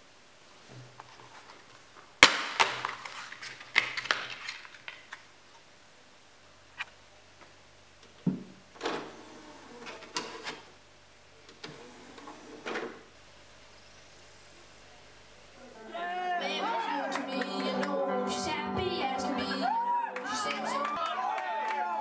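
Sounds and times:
plastic dvd case clicks: 2.2s - 5.2s.

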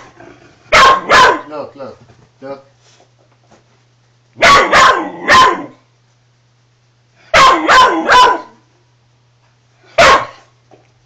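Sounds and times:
dog barking: 0.7s - 1.5s, 4.4s - 5.8s, 7.3s - 8.6s, 9.9s - 10.5s.

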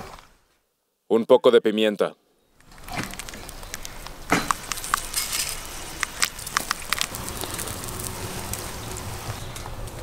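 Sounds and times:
wood fire crackling: 2.6s - 10.0s.

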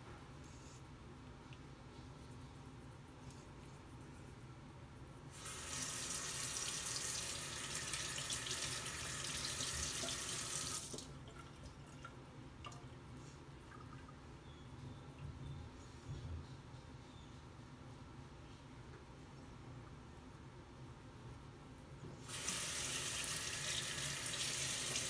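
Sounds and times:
sink tap running: 22.3s - 25.0s.

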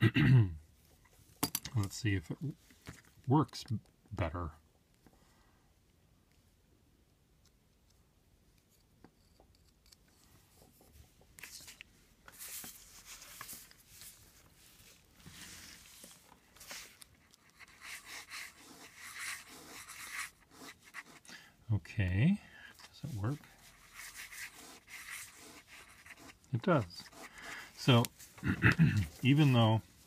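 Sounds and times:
pen nib scratching paper: 16.6s - 21.3s, 23.6s - 28.0s.

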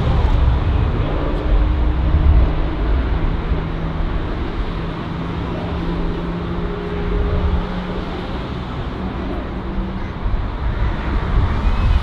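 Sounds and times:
deeper rumble: 0.0s - 12.0s
jet engine rumble: 0.0s - 12.0s.

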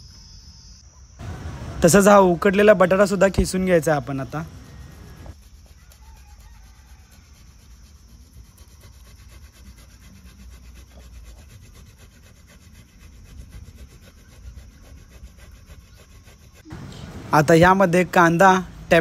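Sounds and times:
potato grating on metal grater: 5.3s - 16.7s.

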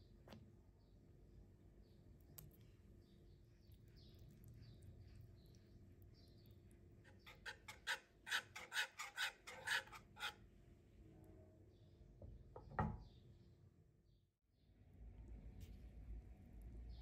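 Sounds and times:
whisk scraping metal pan: 7.0s - 10.4s.

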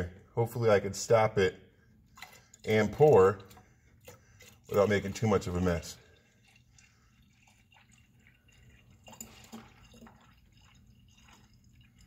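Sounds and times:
small drips: 1.8s - 12.0s
liquid trickling: 2.0s - 12.0s.

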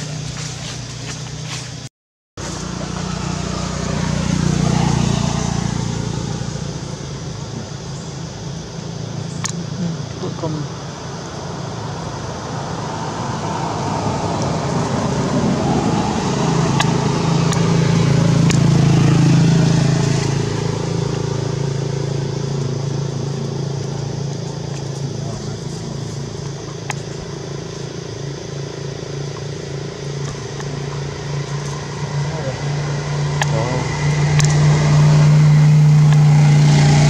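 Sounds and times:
motor engine humming: 0.0s - 37.0s
sharp clicks: 34.3s - 34.6s.

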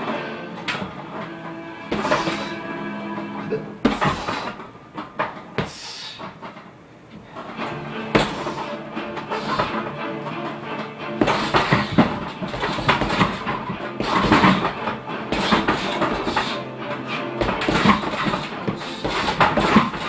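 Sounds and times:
background music: 0.0s - 5.5s, 7.2s - 20.0s
punches thudding on heavy bag: 1.9s - 2.5s, 3.8s - 4.6s, 8.1s - 8.7s, 11.2s - 16.6s, 17.4s - 20.0s.

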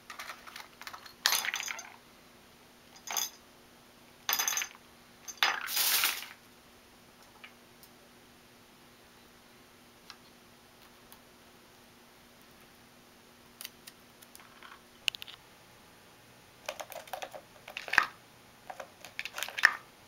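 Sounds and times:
small objects clattering on countertop: 0.0s - 2.0s, 4.3s - 6.4s, 16.7s - 19.8s.

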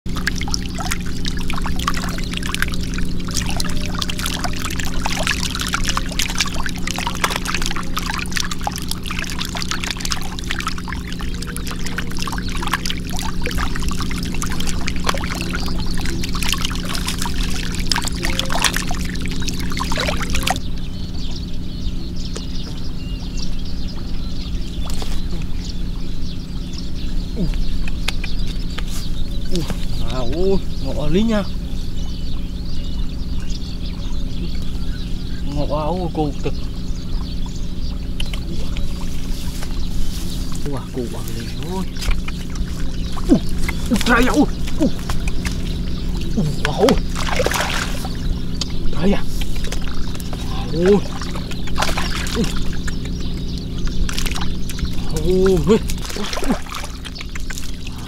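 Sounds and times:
water splashing and pouring: 0.1s - 20.6s, 39.9s - 48.3s, 49.4s - 58.0s
steady low hum: 0.1s - 58.0s.

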